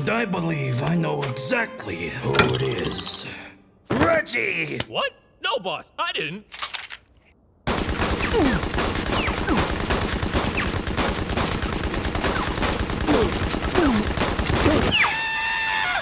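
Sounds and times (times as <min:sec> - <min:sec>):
cartoon handguns firing rapidly: 0:07.7 - 0:15.2.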